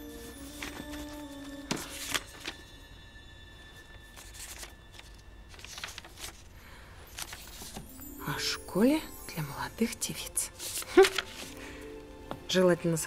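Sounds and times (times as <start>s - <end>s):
book pages rustling: 0.0s - 2.9s, 3.7s - 8.0s, 10.5s - 12.4s.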